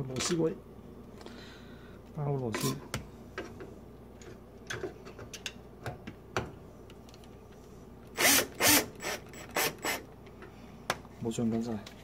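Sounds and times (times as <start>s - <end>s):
power screwdriver driving screw: 8.2s - 10.0s.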